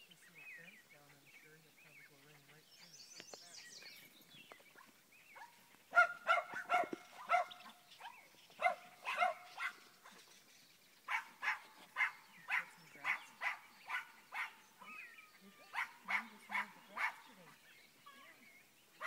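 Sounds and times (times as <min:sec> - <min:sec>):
small dog yapping: 0:05.4 - 0:09.8.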